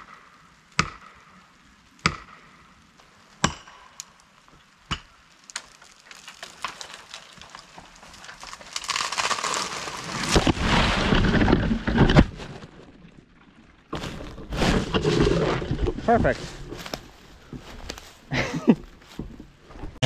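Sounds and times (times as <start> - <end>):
axe striking wedge: 0.8 - 1.1, 2.0 - 2.4
tree cracking: 3.0 - 13.0, 13.9 - 20.0
branches crashing: 4.9 - 13.0, 13.9 - 20.0.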